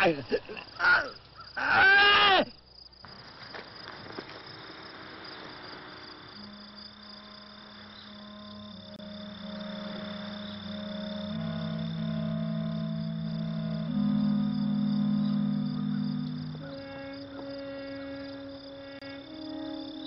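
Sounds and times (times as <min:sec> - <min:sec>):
thin high insect-like tone: 0:02.8 - 0:20.0
soft soundtrack music: 0:06.4 - 0:20.0.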